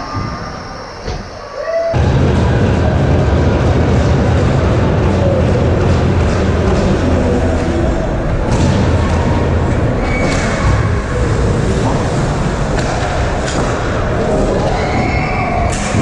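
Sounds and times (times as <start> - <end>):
spectator chatter: 0.0 - 16.0
rink noise rumble: 2.0 - 16.0
hockey sticks and puck clacking: 5.8 - 7.7, 8.5 - 16.0.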